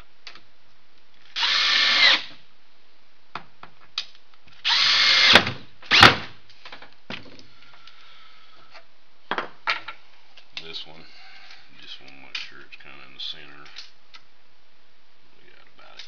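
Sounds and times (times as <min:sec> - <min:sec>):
cordless drill driving screws: 0:01.4 - 0:02.3, 0:04.6 - 0:06.2.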